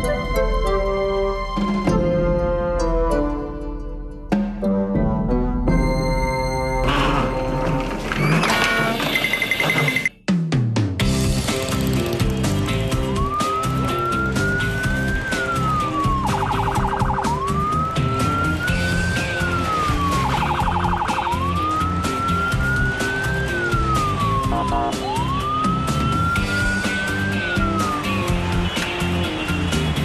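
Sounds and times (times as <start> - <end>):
background music with steady beat: 10.1 - 30.0
police siren wailing: 13.0 - 28.6.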